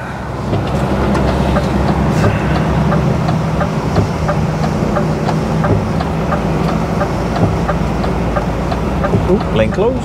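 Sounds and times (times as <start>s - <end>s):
lorry engine running: 0.0s - 10.0s
light ticking: 0.6s - 10.0s.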